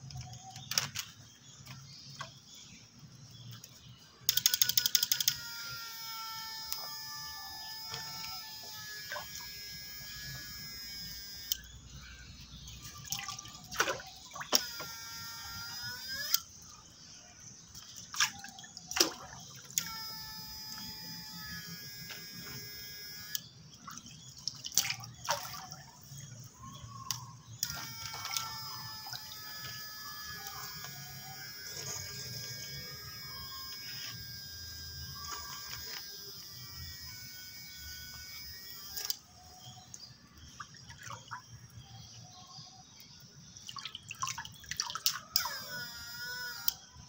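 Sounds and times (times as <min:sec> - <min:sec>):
sharp clicks: 0:03.6 - 0:11.8, 0:14.5 - 0:16.5, 0:19.7 - 0:23.5, 0:27.0 - 0:39.3
high electronic whine: 0:04.4 - 0:12.0, 0:19.8 - 0:23.4, 0:27.6 - 0:39.3.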